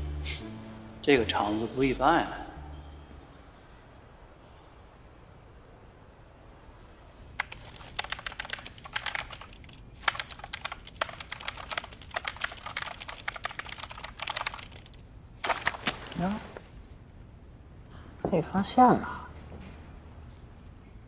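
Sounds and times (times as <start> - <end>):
fast typing on keyboard: 7.4 - 16.3.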